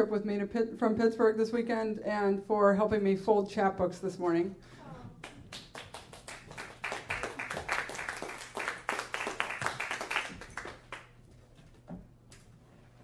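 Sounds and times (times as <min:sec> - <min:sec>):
audience applauding: 0:05.2 - 0:11.2.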